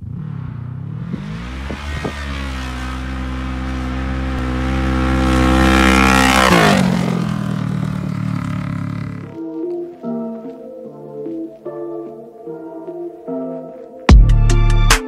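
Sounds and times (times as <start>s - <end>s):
off-road vehicle engine passing: 0.0s - 9.4s.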